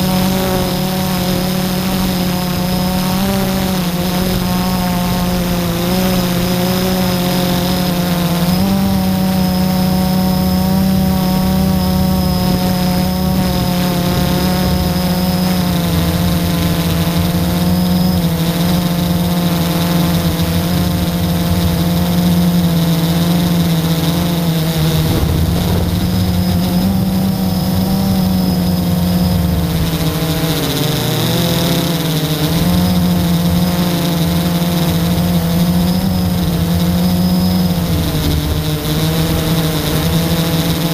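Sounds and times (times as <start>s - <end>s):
quadcopter motors whining: 0.0s - 40.9s.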